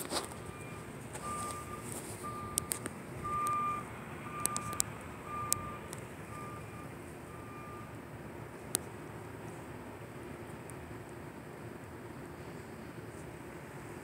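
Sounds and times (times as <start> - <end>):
low background noise: 0.0 - 14.0
reversing alarm beeping: 0.4 - 8.0
sharp clicks: 4.4 - 6.1.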